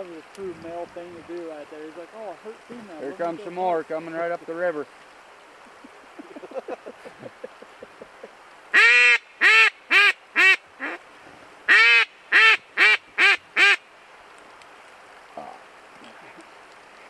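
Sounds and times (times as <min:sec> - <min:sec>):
duck call clucks: 0:08.7 - 0:11.0, 0:11.7 - 0:13.8
duck call quacking: 0:08.7 - 0:11.0, 0:11.7 - 0:13.8.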